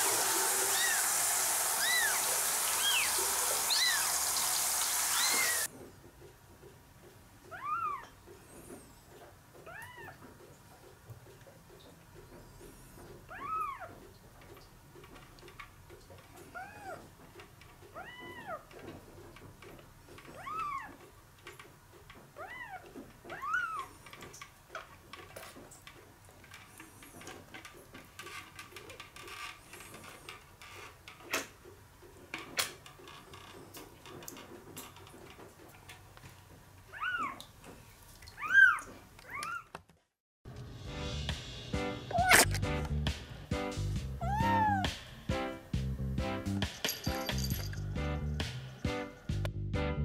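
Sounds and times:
small water splashes: 0.0 - 5.7, 36.9 - 39.4
kitten mewing: 42.1 - 42.5, 44.2 - 45.0.

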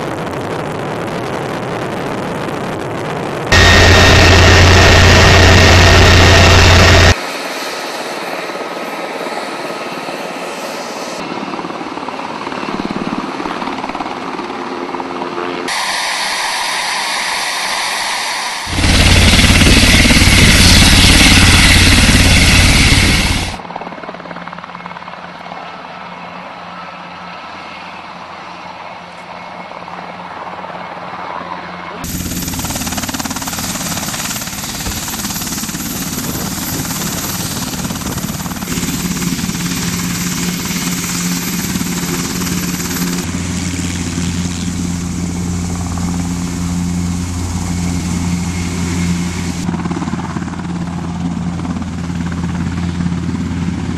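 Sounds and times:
helicopter rotors and turbine whine: 0.0 - 53.9
loud rushing noise: 3.5 - 7.3, 15.7 - 23.6.

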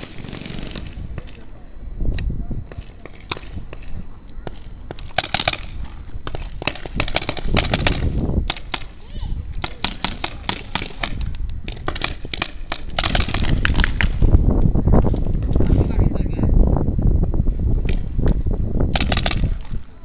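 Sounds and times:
wind rumble on microphone: 0.0 - 20.0
paintball markers firing: 2.2 - 9.0, 9.6 - 14.3, 18.9 - 19.7.

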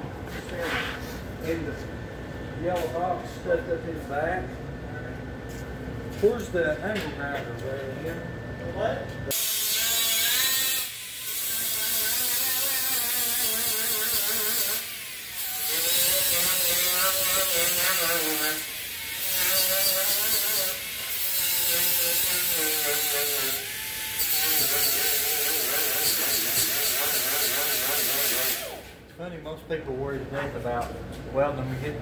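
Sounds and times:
angle grinder grinding metal: 9.3 - 28.8.

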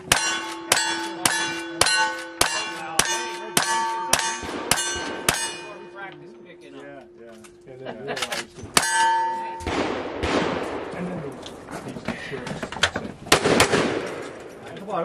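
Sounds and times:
steel targets clanging: 0.0 - 6.3, 8.2 - 9.9
rifle shots: 9.6 - 11.0, 13.3 - 14.5.

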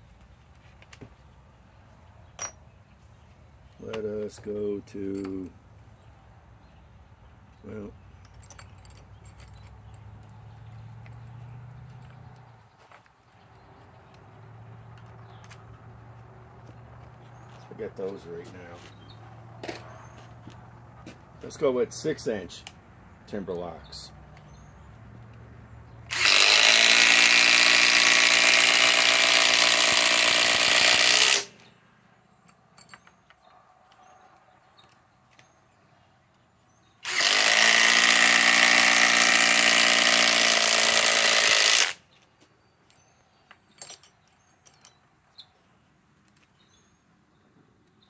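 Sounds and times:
impact driver hammering screws into wood: 26.1 - 31.7, 37.0 - 42.0.

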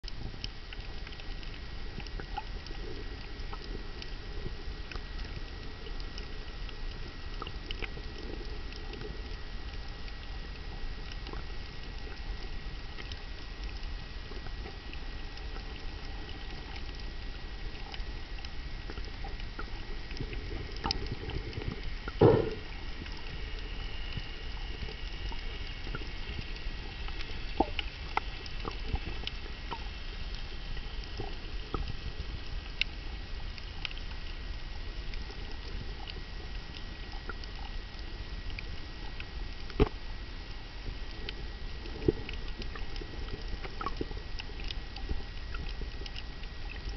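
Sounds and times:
faint clicks and crackles: 0.0 - 46.9
low underwater rumble and hiss: 0.0 - 46.9
sharp knock: 22.2 - 22.6.

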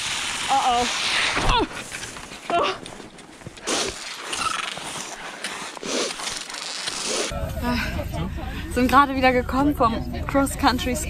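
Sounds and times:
skis gliding on snow: 0.0 - 7.3
brief pitched squeaks: 4.3 - 4.8.

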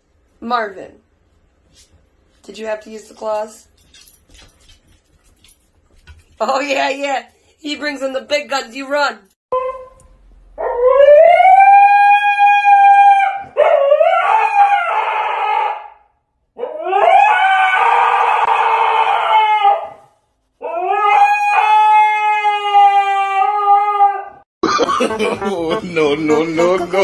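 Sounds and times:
dog howling: 10.6 - 16.0, 16.6 - 20.0, 20.6 - 24.4.

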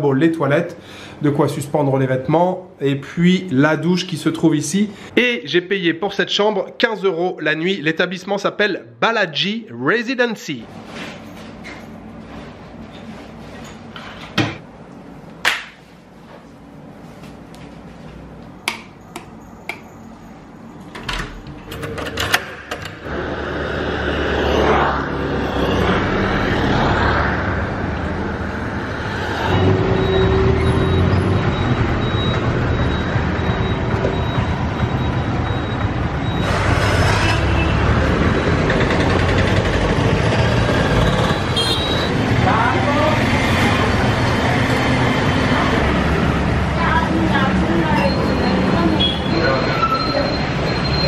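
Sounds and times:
road traffic passing: 22.3 - 51.0.

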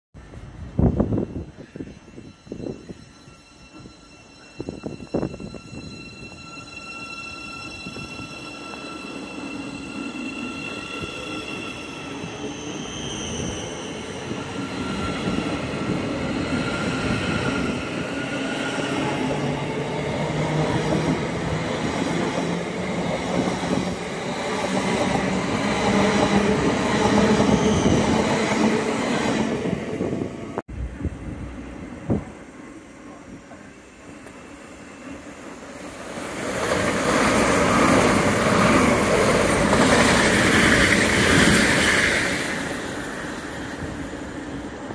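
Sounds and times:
electric train traction whine: 0.2 - 44.9
train wheels rumbling and rattling: 36.0 - 44.9.

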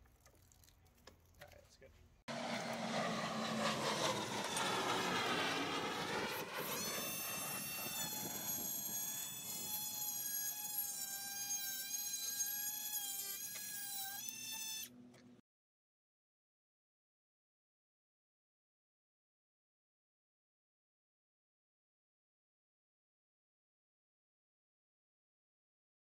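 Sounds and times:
cutoff tool cutting stone tile: 6.6 - 14.8.

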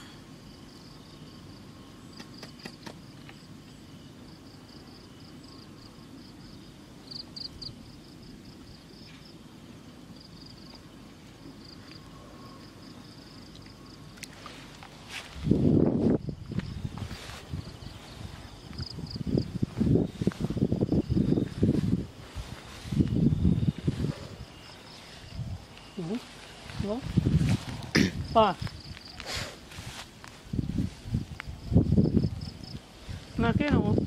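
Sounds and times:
insects chirping trill: 0.0 - 34.0
microphone handling rumble: 15.3 - 24.6, 26.7 - 29.1.

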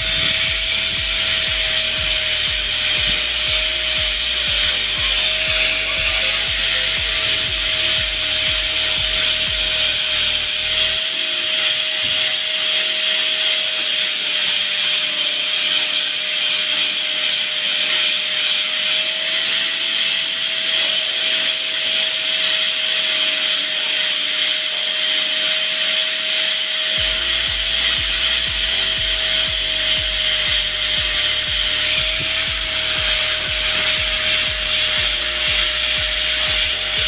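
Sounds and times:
angle grinder grinding: 0.0 - 37.0.

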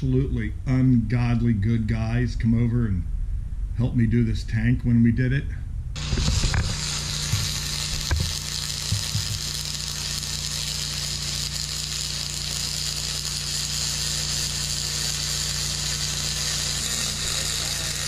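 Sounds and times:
low electrical hum: 0.0 - 18.0
welding arc hiss: 6.0 - 18.0.

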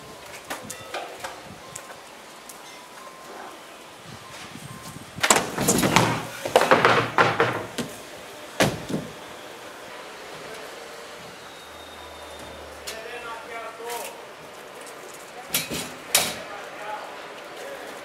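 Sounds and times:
skateboard hard impact: 5.2 - 7.9
body and board scraping on wood: 5.2 - 8.0.

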